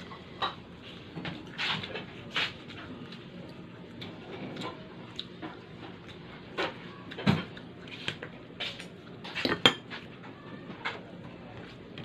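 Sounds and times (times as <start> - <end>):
chewing and mouth sounds: 1.3 - 10.1.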